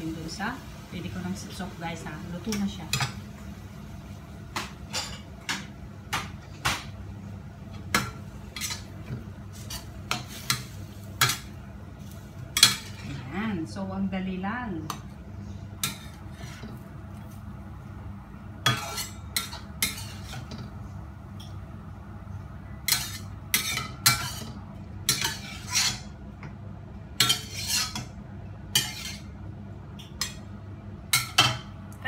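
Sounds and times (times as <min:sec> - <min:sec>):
steady low hum: 0:00.0 - 0:32.0
metal spatula scraping in wok: 0:15.8 - 0:16.8, 0:18.6 - 0:20.6, 0:22.9 - 0:26.2, 0:27.2 - 0:28.1, 0:28.8 - 0:29.3.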